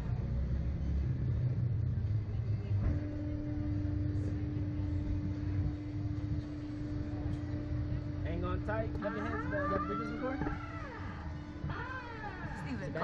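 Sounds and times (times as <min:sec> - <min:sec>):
pitched hum: 0:00.0 - 0:13.0.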